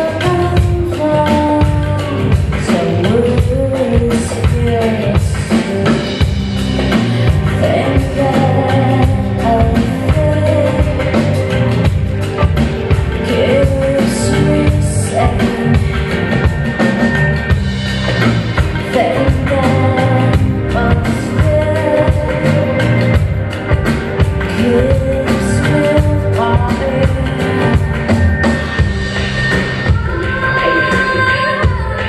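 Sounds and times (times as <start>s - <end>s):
woman singing into microphone: 0.0s - 6.3s, 7.2s - 11.8s, 13.1s - 16.2s, 18.8s - 23.5s, 24.4s - 28.1s, 29.8s - 32.0s
live band playing: 0.0s - 32.0s.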